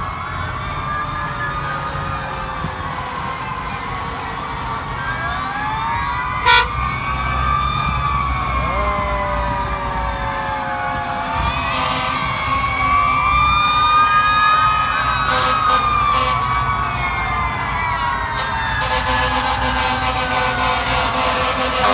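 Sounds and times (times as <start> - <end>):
fire truck sirens wailing: 0.0 - 21.9
low rumble of truck engines: 0.0 - 21.9
loud horn blast: 6.4 - 6.8, 11.6 - 12.4, 15.2 - 16.5, 18.4 - 21.9.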